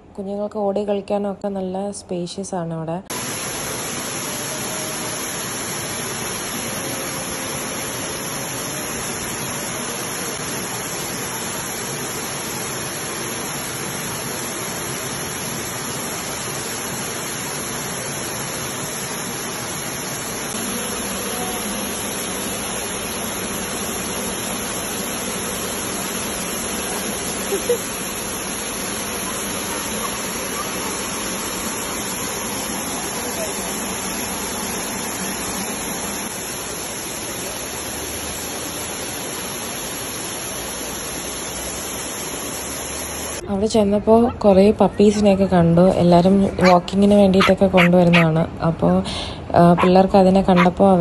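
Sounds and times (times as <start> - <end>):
waterfall splashing into pool: 3.1 - 43.4.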